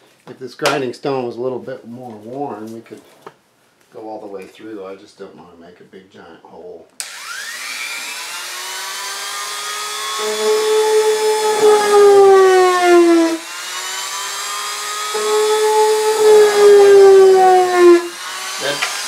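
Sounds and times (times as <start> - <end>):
rotary tool grinding fiberglass: 7.1 - 19.0.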